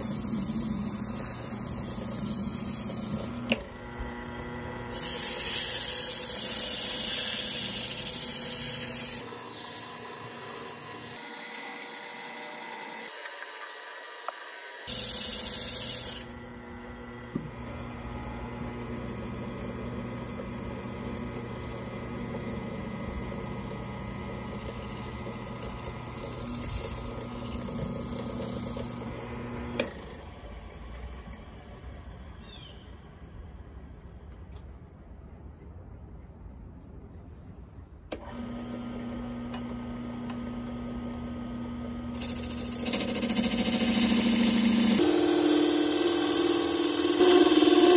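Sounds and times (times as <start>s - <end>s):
turning tool cutting wood hiss: 0.0s - 3.6s, 4.8s - 16.4s, 19.1s - 30.9s, 41.4s - 47.9s
wood lathe humming: 0.0s - 31.8s, 38.2s - 47.9s
sanding pad hissing on wood: 4.9s - 11.2s, 14.9s - 16.4s.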